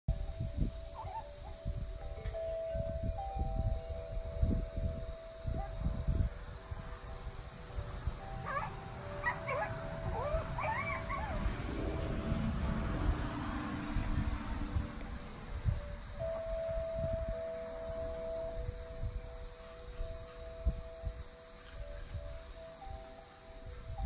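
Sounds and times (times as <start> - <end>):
insect chirping: 0.1 - 24.0
squeaky rising and falling calls: 7.6 - 12.1.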